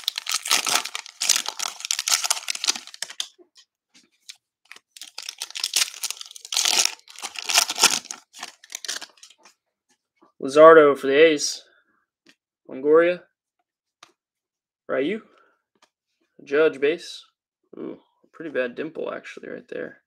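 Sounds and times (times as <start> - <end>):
plastic wrapper tearing and crinkling: 0.0 - 3.4, 4.2 - 9.4.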